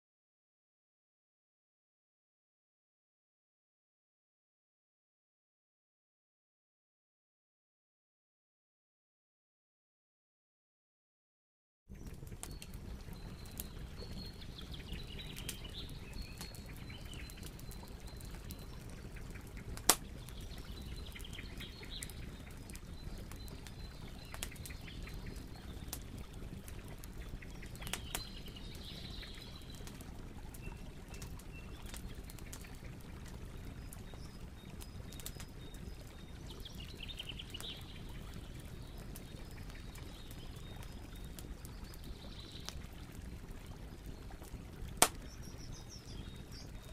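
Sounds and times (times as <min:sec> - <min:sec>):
small birds chirping: 0:11.9 - 0:46.9.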